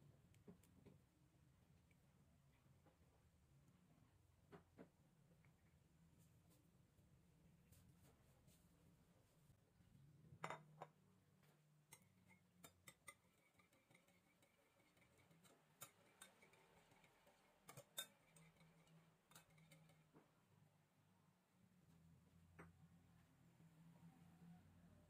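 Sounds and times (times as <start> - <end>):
whisk clinking against glass bowl: 11.9 - 20.1.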